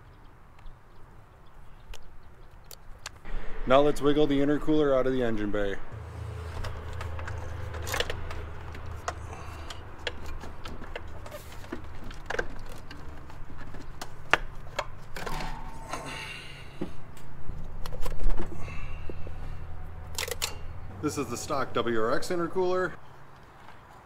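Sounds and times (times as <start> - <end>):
steady low hum: 15.2 - 22.5.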